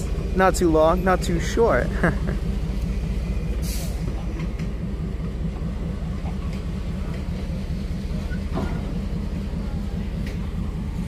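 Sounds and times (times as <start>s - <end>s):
train rumbling past: 0.0s - 11.0s
light clicks of train: 2.7s - 11.0s.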